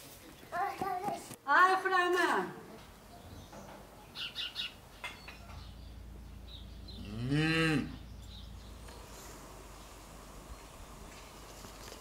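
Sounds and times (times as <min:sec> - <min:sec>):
cow mooing: 0:07.0 - 0:08.0.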